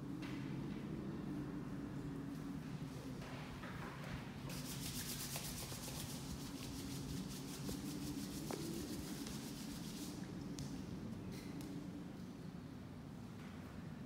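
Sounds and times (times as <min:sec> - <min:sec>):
low room hum: 0:00.0 - 0:14.0
hands rubbing over clothing: 0:04.5 - 0:10.3.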